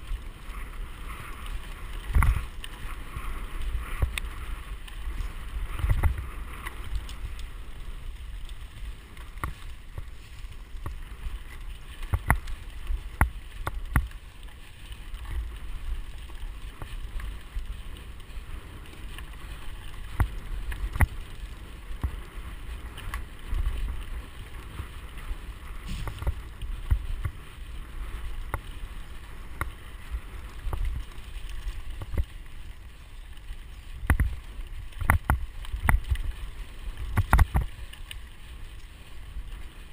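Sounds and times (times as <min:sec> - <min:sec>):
wind on microphone: 0:00.0 - 0:08.6, 0:16.5 - 0:32.3
bike knocking and rattling: 0:00.0 - 0:39.9
bike tyres on dirt: 0:00.0 - 0:39.9.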